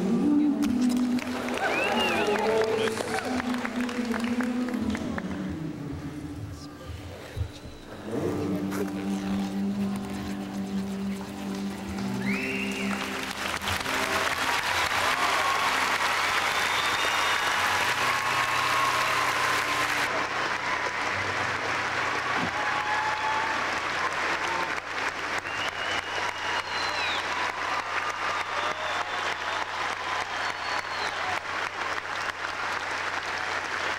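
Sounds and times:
audience applauding and cheering: 0.8 - 5.8, 9.3 - 33.9
whistles: 1.6 - 2.5, 12.2 - 13.1, 16.2 - 19.4, 25.4 - 27.5, 28.2 - 31.4.

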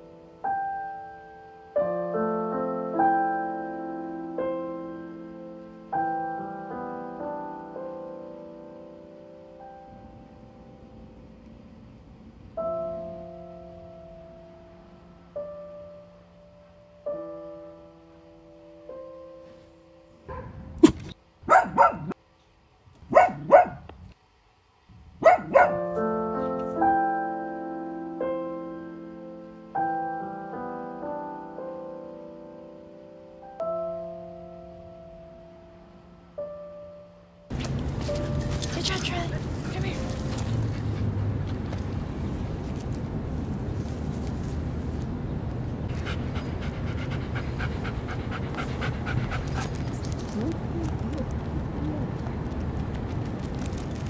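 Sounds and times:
piano music: 0.0 - 21.9, 25.2 - 52.5
dog barking: 20.3 - 20.6, 21.4 - 22.2, 23.1 - 23.9, 25.2 - 25.9
low rumble: 37.5 - 54.0
dog panting quickly: 38.2 - 41.4, 45.9 - 50.2.

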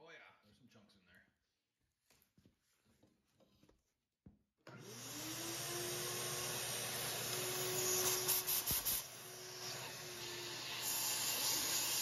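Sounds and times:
shop vacuum motor whine: 4.7 - 12.0
compressed air hiss from blow gun: 8.0 - 9.1.

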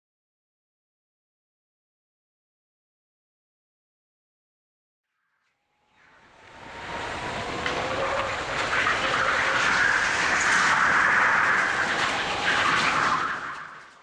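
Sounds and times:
go-kart engine and tyre rush: 6.1 - 14.0.

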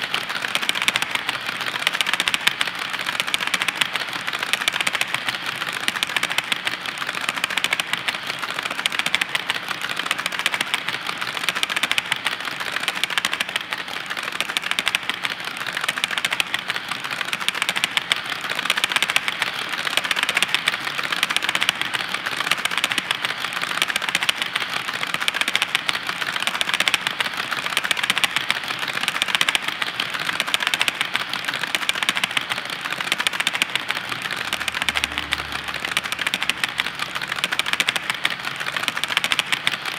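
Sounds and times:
model train wheels clattering: 0.0 - 39.9.

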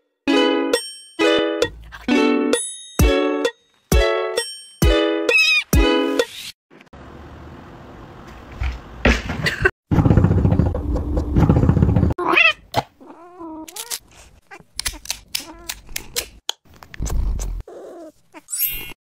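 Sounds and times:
cat meowing: 12.2 - 15.8.

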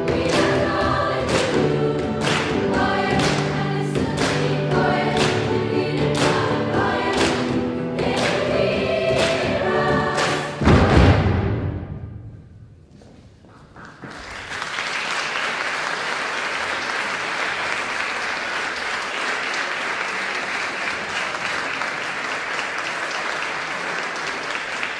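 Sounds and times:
choir chord echoing: 0.0 - 12.2
audience applause: 2.2 - 5.6, 13.7 - 24.9.

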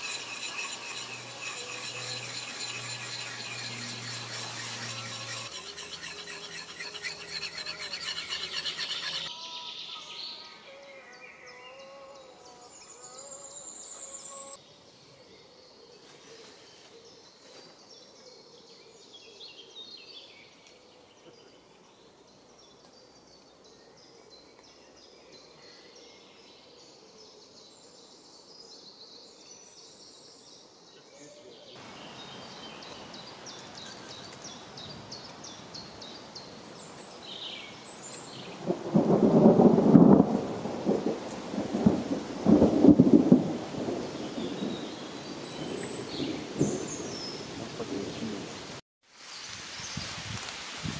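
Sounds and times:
tool scraping an axe head: 0.0 - 9.3
birds chirping: 0.0 - 16.2, 16.8 - 39.7, 43.8 - 48.8
rain hissing: 37.8 - 50.9.

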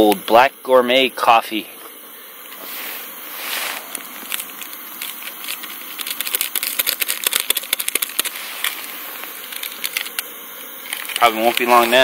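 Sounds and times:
camp stove hissing: 0.0 - 12.0
coffee packet crinkling: 3.6 - 12.0
crackling ticks: 4.3 - 8.3.

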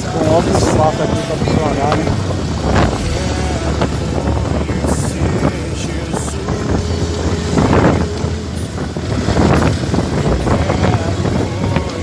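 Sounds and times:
vehicle rumble: 0.0 - 12.0
wind buffeting microphone: 0.0 - 12.0.

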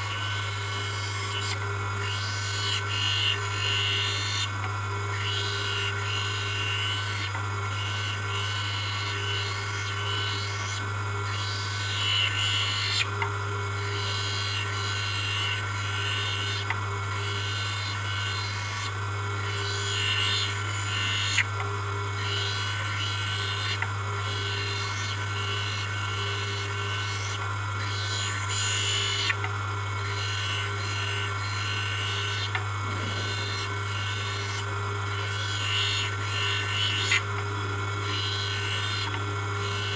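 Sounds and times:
lens rasping on grinding wheel: 0.0 - 13.2, 13.8 - 21.5, 22.1 - 39.9
edger motor humming: 0.0 - 39.9.

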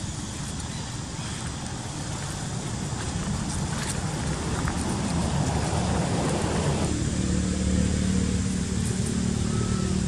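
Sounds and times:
vehicle engine running: 2.7 - 10.0.

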